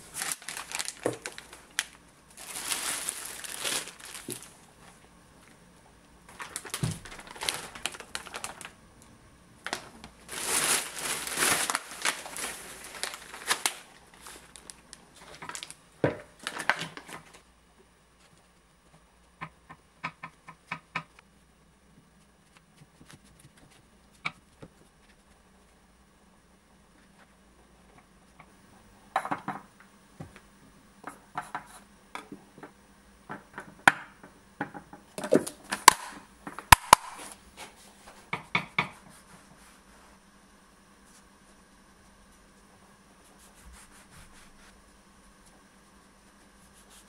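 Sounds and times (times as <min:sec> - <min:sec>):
rustling and crinkling: 0:00.0 - 0:05.6, 0:06.3 - 0:08.8, 0:09.6 - 0:17.5.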